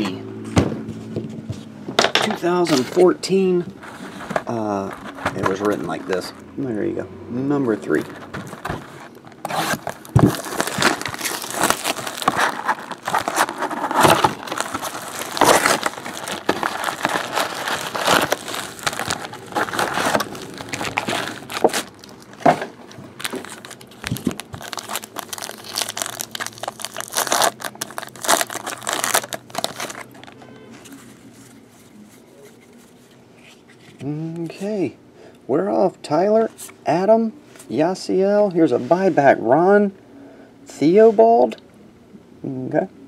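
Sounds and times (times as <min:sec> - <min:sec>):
shrink wrap tearing: 0:07.9 - 0:22.5, 0:23.2 - 0:31.0
wrapper ripping open: 0:09.3 - 0:22.5, 0:23.2 - 0:30.4.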